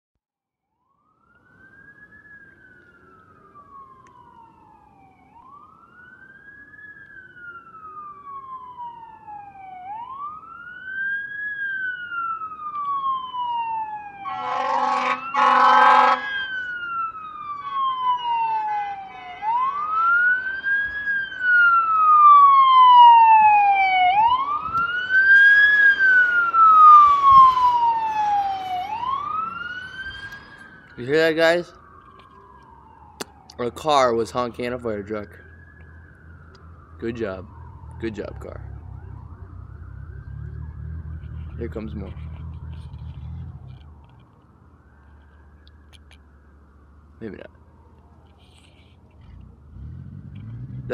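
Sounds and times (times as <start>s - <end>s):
fire engine siren wailing: 0.6s - 50.9s
car horn honking: 14.2s - 16.4s.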